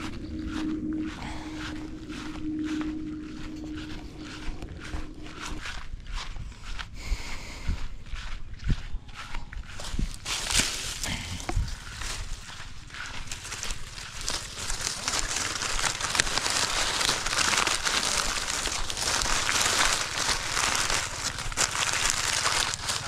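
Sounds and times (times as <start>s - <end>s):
rustling and crackling clicks: 10.2s - 23.0s.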